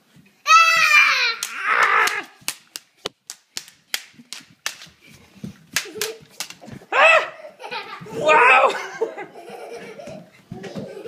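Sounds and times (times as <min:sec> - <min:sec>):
sharp taps and clacks: 0:01.4 - 0:05.0, 0:05.7 - 0:06.6.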